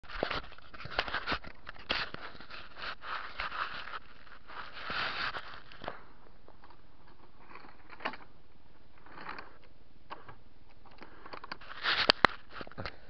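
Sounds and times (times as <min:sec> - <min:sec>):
camera handling noise: 0:11.3 - 0:12.9.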